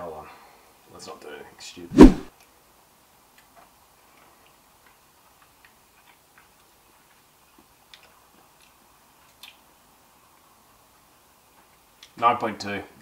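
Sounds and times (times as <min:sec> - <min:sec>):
faint eating clicks: 0:03.3 - 0:10.5, 0:11.5 - 0:12.2.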